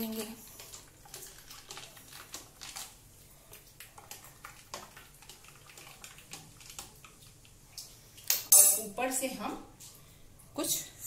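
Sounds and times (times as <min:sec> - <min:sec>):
liquid swirling: 0:00.0 - 0:08.3.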